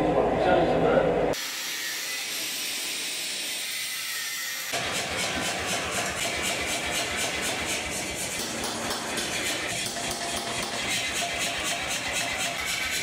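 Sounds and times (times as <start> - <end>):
angle grinder cutting steel: 1.4 - 13.0.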